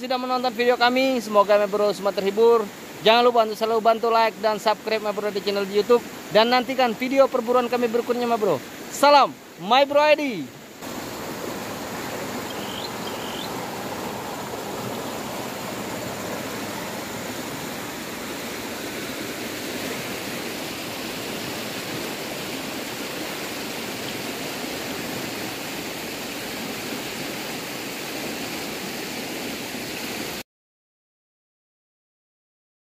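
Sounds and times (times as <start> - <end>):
river water rushing over rapids: 0.0 - 30.4.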